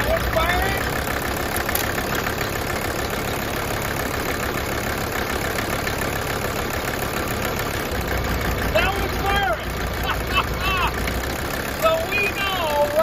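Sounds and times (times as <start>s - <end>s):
diesel engine clatter: 0.0s - 13.0s.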